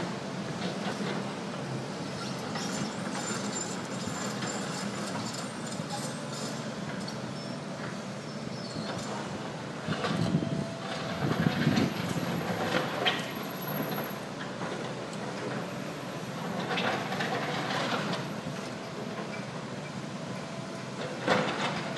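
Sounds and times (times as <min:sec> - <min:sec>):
diesel engines running: 0:00.0 - 0:21.9
clatter of masonry and metal: 0:16.4 - 0:18.3, 0:21.0 - 0:21.9.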